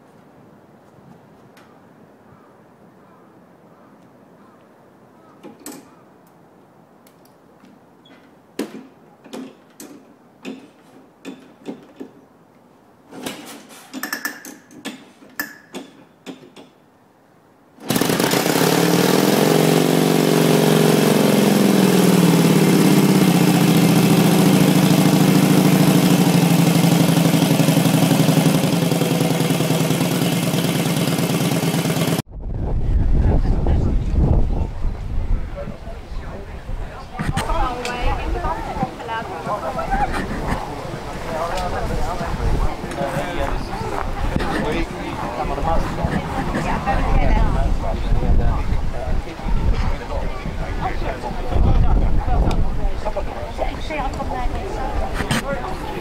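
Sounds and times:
motorcycle engine revving and idling: 0:17.8 - 0:32.2.

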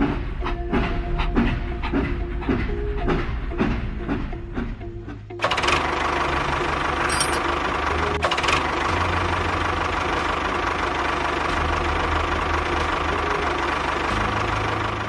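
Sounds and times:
tractor engine chugging: 0:00.0 - 0:15.0.

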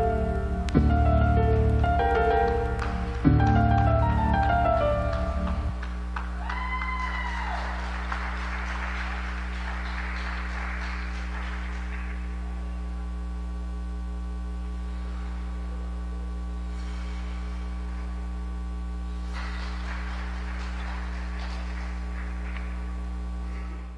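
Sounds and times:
faint music: 0:00.0 - 0:13.7
steady low hum: 0:00.0 - 0:23.9.

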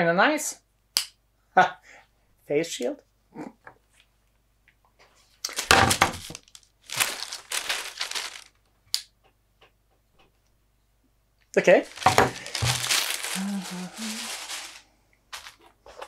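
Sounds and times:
plastic bag crinkling: 0:05.5 - 0:08.7, 0:11.8 - 0:16.0.

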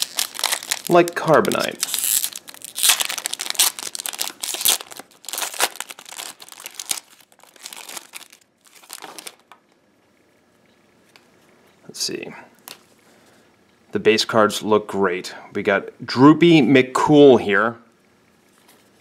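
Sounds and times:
foil wrapper crinkling and tearing: 0:00.0 - 0:09.6.

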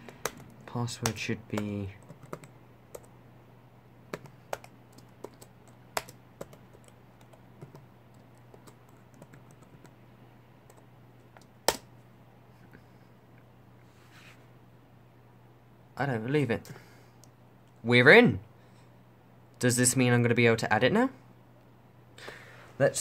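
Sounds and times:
keyboard keys tapping: 0:00.0 - 0:03.1, 0:04.1 - 0:10.0
low steady hum: 0:00.0 - 0:23.0.

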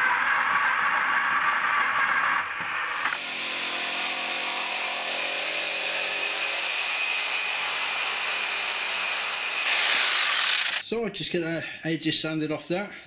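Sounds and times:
jigsaw cutting wood: 0:02.9 - 0:10.8
power drill boring: 0:02.9 - 0:10.8.

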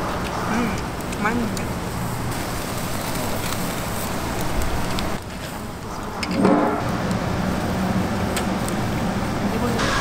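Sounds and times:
shellfish sizzling on grill: 0:00.0 - 0:05.9.

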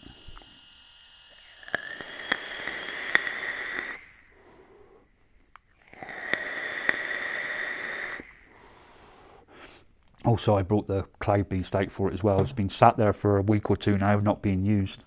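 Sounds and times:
e-cigarette airflow hiss: 0:00.0 - 0:10.0.

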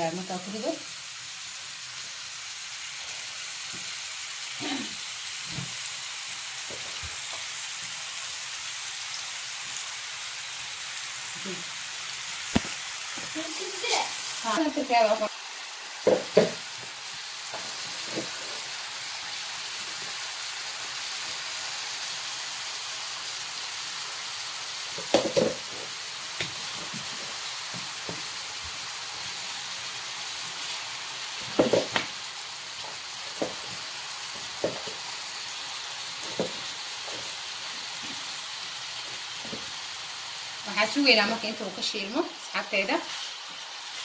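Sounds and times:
meatballs sizzling in oil: 0:00.0 - 0:44.0.

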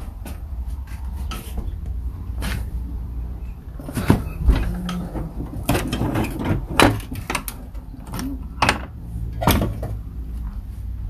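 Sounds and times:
tools knocking and rattling: 0:03.8 - 0:10.1.

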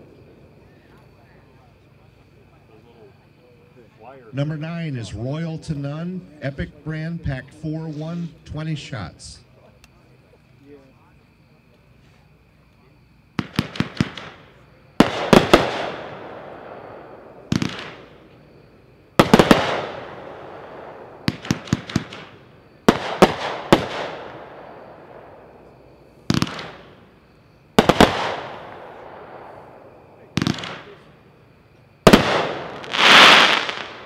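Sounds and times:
fireworks cake firing bangs: 0:13.3 - 0:18.3, 0:19.1 - 0:31.4, 0:32.0 - 0:34.0.

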